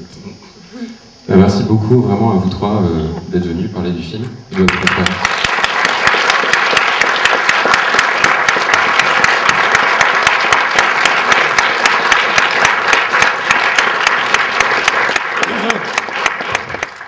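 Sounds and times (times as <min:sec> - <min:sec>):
audience applauding: 0:04.6 - 0:17.0.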